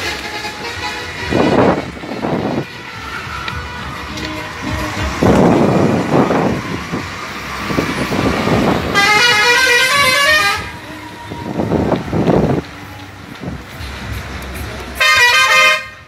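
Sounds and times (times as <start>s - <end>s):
bus horn playing changing notes: 0.0s - 3.2s, 8.8s - 11.6s, 15.0s - 16.0s
bus passing and pulling away: 0.0s - 16.0s.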